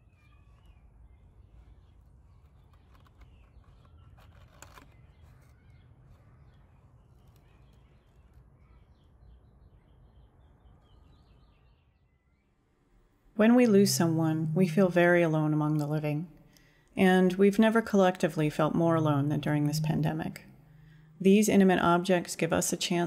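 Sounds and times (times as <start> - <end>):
faint bird chirps: 0.0 - 14.6, 18.4 - 21.9
crackly paper rustle: 1.6 - 8.6.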